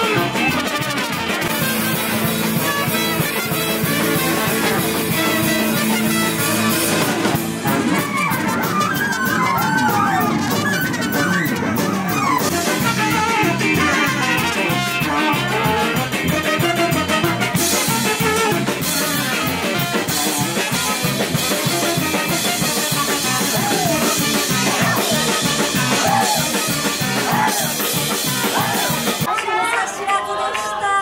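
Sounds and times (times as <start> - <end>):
drum kit beat: 0.0 - 29.3
guitar: 0.0 - 29.3
saxophone: 0.0 - 29.3
brass: 0.0 - 30.0.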